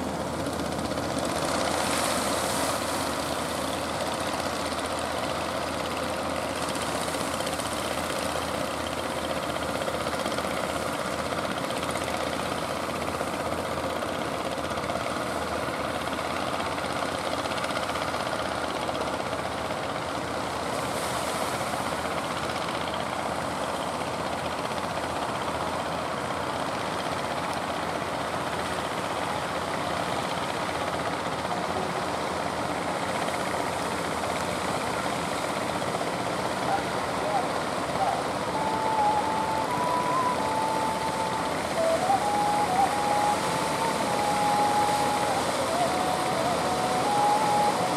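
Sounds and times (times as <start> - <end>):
boat engine running: 0.0 - 47.9
churning water rushing: 0.0 - 47.9.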